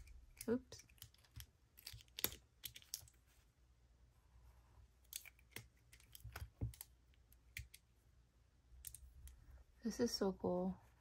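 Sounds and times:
pencils clicking and tapping: 0.0s - 3.3s, 5.0s - 7.9s, 8.8s - 9.5s.

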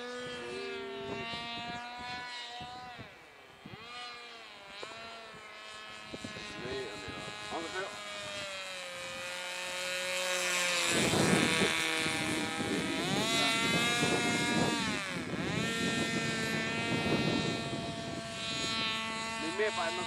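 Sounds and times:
model airplane motor whining: 0.0s - 20.0s.

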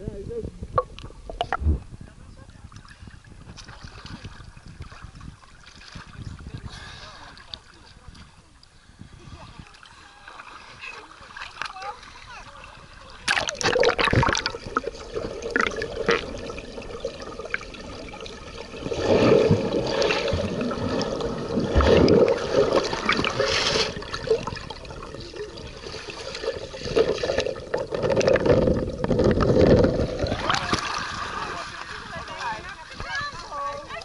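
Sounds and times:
underwater water gurgling and rushing: 11.4s - 33.0s.

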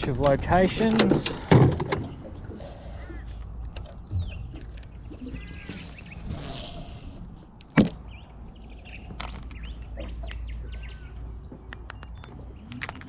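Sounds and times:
birds chirping: 0.0s - 13.0s
fishing line hissing off reel: 5.7s - 7.2s.

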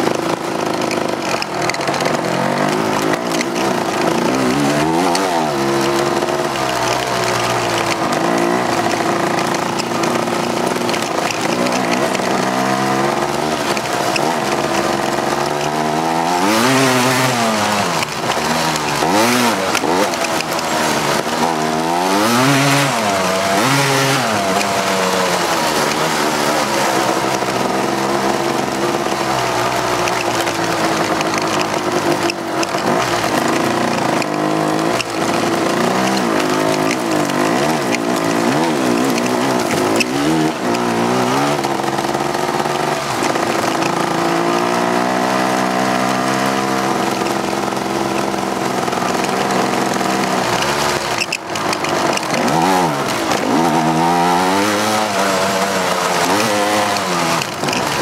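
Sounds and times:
atv engine revving: 0.0s - 58.0s.

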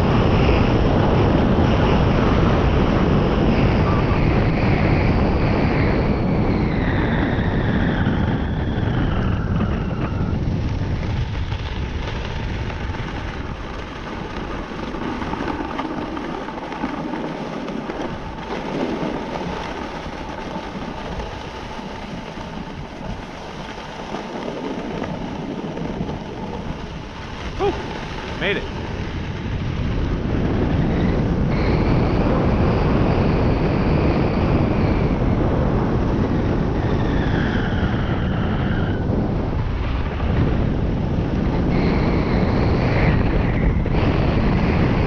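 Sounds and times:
wind rushing over microphone: 0.0s - 45.0s
skis sliding on snow: 9.7s - 30.0s.

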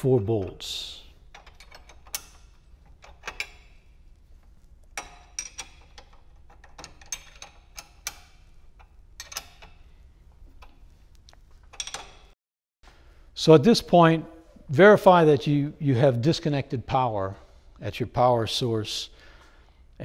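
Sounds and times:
metal clinks of wrench on bolt: 1.3s - 3.8s, 5.0s - 8.4s, 9.2s - 9.8s.

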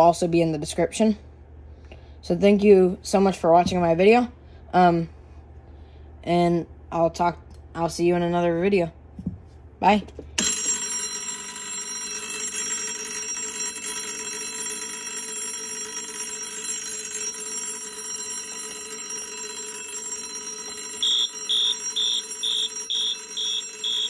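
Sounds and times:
electric doorbell ringing: 10.4s - 24.0s
high beeping: 21.0s - 24.0s.

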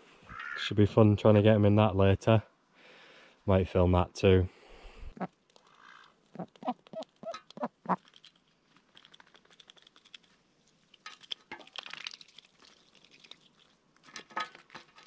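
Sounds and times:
duck dabbling in water: 11.1s - 13.8s.

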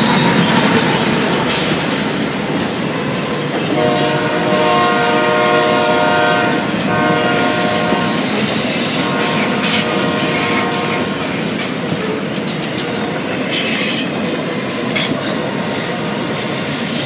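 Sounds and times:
train wheels on rails: 0.0s - 17.0s
locomotive air horn: 3.7s - 11.5s.

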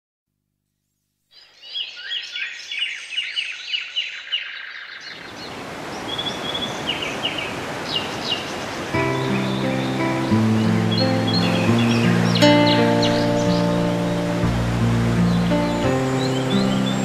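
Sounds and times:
birds chirping: 1.4s - 17.0s
water rushing: 5.5s - 17.0s
waterfall roaring: 5.7s - 17.0s.

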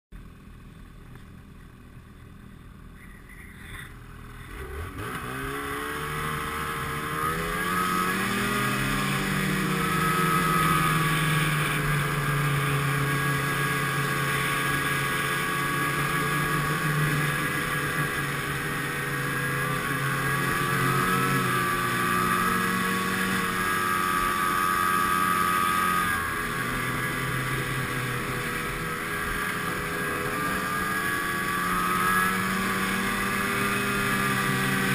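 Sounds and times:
snowmobile engine with high whine: 0.1s - 34.9s.

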